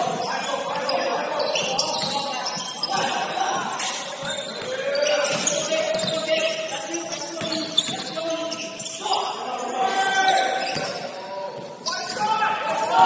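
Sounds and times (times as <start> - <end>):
basketball bouncing on court: 0.0 - 6.4
players' voices: 0.0 - 13.0.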